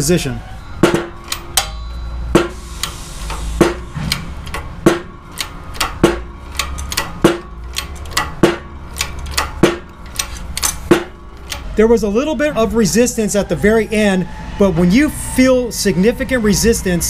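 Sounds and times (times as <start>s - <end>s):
shop press metallic clanks: 0.8s - 11.7s.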